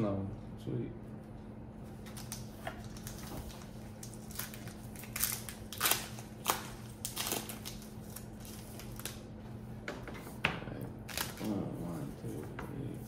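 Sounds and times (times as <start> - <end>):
foil wrapper crinkling: 2.0 - 9.3, 11.0 - 11.7.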